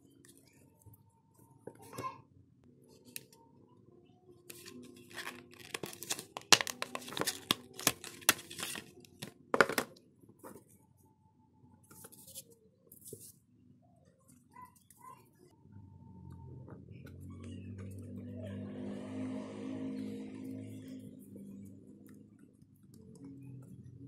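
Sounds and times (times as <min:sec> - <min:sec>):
faint plastic rustles: 0:04.4 - 0:09.4
plastic blister pack crackling: 0:04.6 - 0:09.3.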